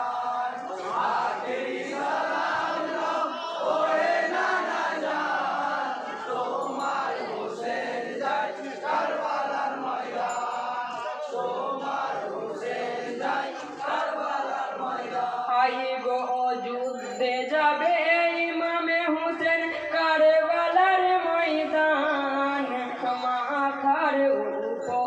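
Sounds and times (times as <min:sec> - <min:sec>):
men chanting in unison: 0:00.0 - 0:16.7.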